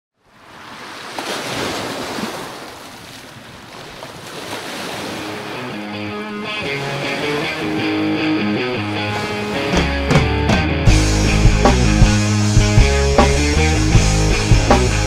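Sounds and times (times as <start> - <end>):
wind: 0.1 - 10.1
waves breaking: 0.2 - 10.6
guitar music: 5.2 - 15.0.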